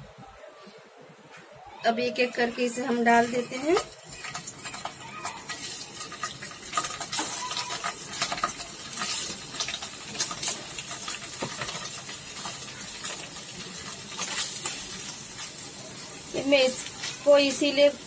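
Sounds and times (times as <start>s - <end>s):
food sizzling in oil: 1.9s - 18.0s
cubes tapping against pan: 3.6s - 14.9s.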